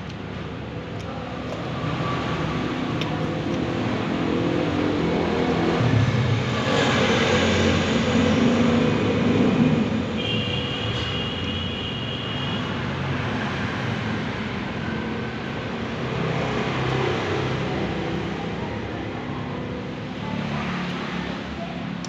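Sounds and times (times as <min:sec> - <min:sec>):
vehicle engine passing by: 0:01.6 - 0:10.1.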